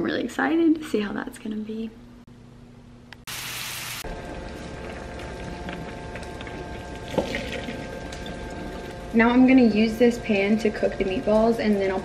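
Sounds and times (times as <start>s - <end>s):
hot water pouring into sink: 3.3s - 9.0s.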